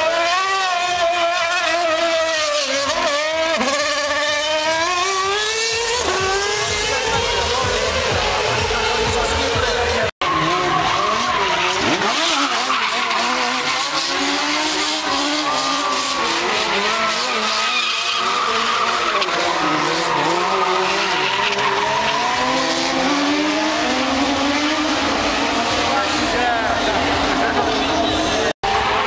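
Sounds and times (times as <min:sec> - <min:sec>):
race car engines revving: 0:00.0 - 0:29.0
tyre squeal: 0:10.2 - 0:25.0.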